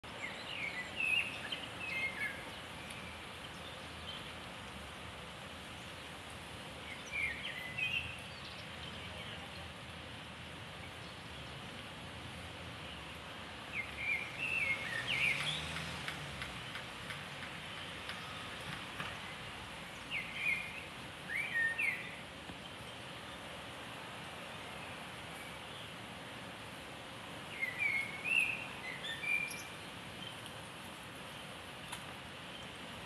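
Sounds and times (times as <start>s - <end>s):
steady outdoor hiss: 0.0s - 33.0s
blackbird singing: 0.1s - 4.3s, 6.9s - 9.5s, 13.7s - 15.7s, 20.0s - 22.2s, 27.5s - 30.4s.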